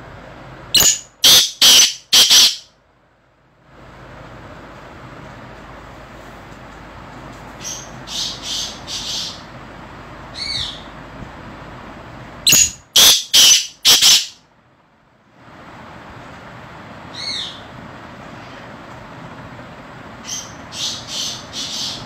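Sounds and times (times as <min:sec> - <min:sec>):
francolin calling: 0:00.8 - 0:02.7, 0:12.5 - 0:14.4.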